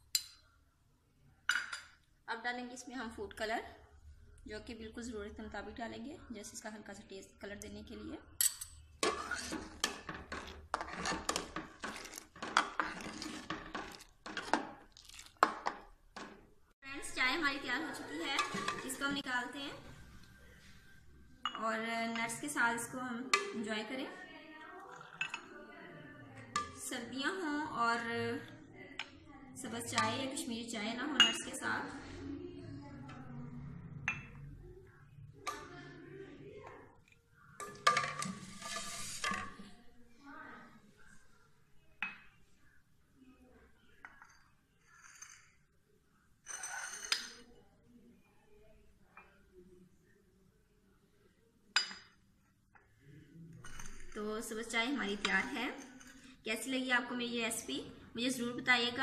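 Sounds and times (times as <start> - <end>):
ceramic clink: 1.5 - 2.0, 51.8 - 52.2
ladle scraping and clinking pot: 8.4 - 16.4, 18.0 - 19.3, 37.6 - 39.7, 53.6 - 56.3
tea pouring into mugs: 9.0 - 16.4.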